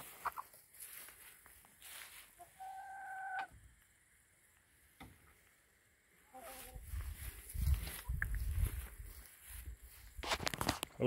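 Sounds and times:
hen calling: 2.3s - 3.6s.

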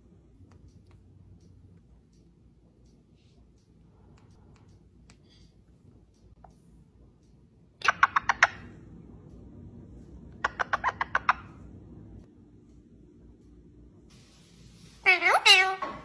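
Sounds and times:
parakeet kissing sounds: 10.4s - 11.5s.

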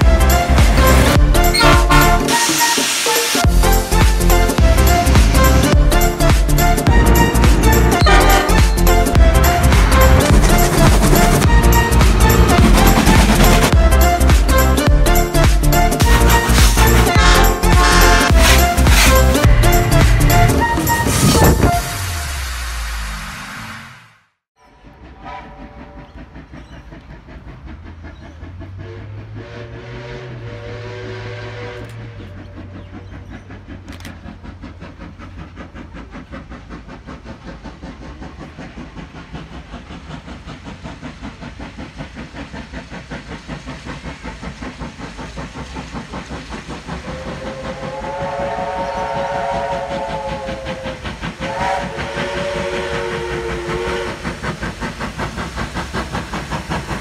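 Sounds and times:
steam locomotive exhaust beats: 0.0s - 23.8s, 24.6s - 57.0s
steam whistle: 0.4s - 3.5s, 6.8s - 10.1s, 16.0s - 22.7s, 25.0s - 26.2s, 28.8s - 32.2s, 47.0s - 54.4s.

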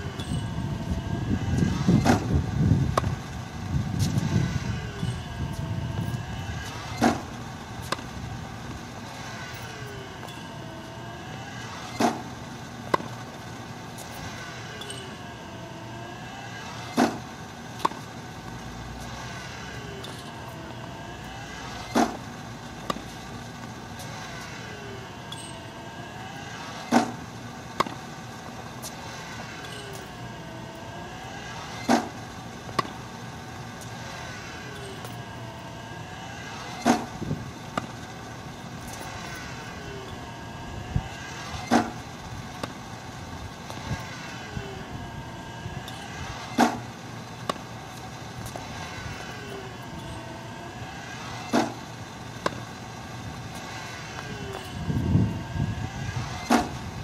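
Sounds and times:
tennis balls being hit: 6.0s - 8.8s, 11.8s - 13.2s, 16.9s - 18.1s, 21.8s - 24.1s, 26.3s - 28.1s, 31.4s - 33.1s, 36.7s - 39.8s, 41.1s - 42.8s, 45.8s - 49.2s, 51.0s - 52.8s.

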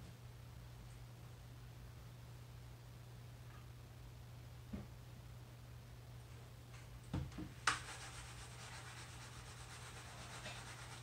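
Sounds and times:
rubbing and scraping: 7.7s - 11.0s.

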